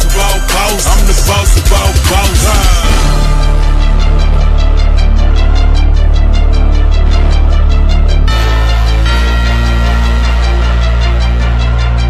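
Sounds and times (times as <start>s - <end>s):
hi-hat ticks: 0.0s - 3.0s
heavy bass: 0.0s - 12.0s.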